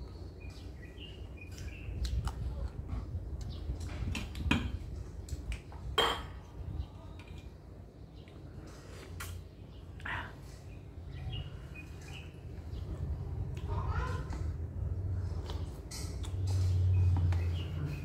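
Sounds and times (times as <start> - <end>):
chewing and lip smacks: 1.6 - 2.8, 9.2 - 9.4, 15.3 - 17.4.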